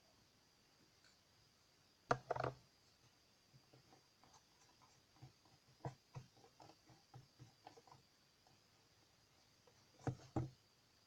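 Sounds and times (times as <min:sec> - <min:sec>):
paintbrush tapping and brushing: 0:03.5 - 0:10.6.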